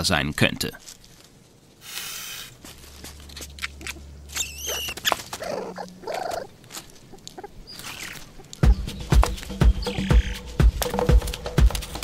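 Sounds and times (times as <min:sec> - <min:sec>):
mongooses chirping and grunting: 0:03.3 - 0:10.5.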